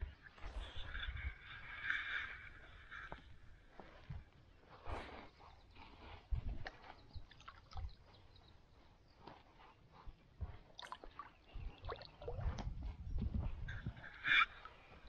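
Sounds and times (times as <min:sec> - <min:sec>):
water splashing and dripping: 0:10.8 - 0:12.6.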